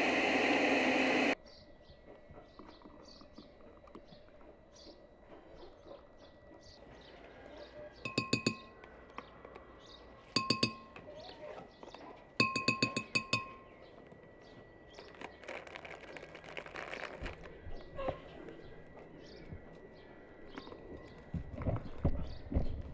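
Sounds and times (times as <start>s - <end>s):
faint birdsong: 1.4s - 22.9s
spoon tapping glass jar: 8.1s - 8.8s, 10.4s - 11.1s, 12.4s - 13.8s.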